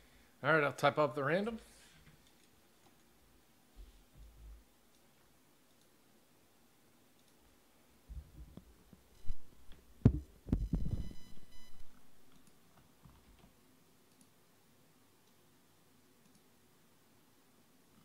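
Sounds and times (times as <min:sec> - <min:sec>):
faint buzzy beep: 0:09.2 - 0:09.7, 0:10.6 - 0:12.2
thumps and knocks on a desk: 0:10.0 - 0:11.1.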